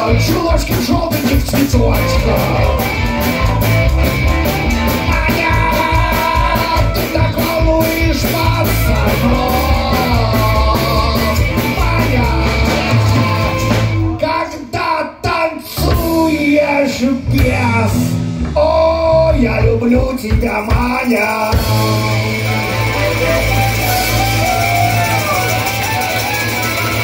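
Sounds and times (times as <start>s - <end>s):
drum kit steady beat: 0.0s - 14.2s, 17.3s - 27.0s
electric guitars: 0.0s - 14.2s, 20.7s - 27.0s
bass: 0.0s - 27.0s
harmonica line: 21.8s - 27.0s.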